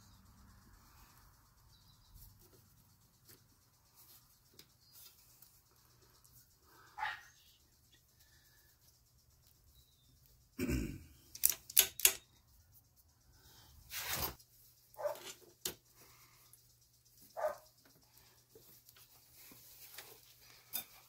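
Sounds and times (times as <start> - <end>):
sharp metal clicks: 11.2 - 12.4
metal scrape: 13.9 - 14.4.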